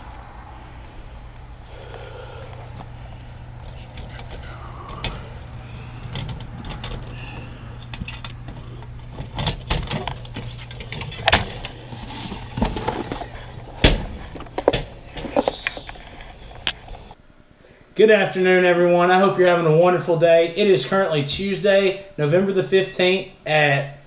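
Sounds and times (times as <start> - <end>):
low hum: 0.0 - 17.7.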